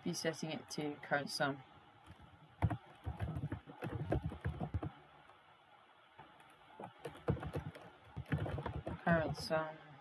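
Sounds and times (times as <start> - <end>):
typing on a keyboard: 2.1 - 5.0, 6.3 - 9.6.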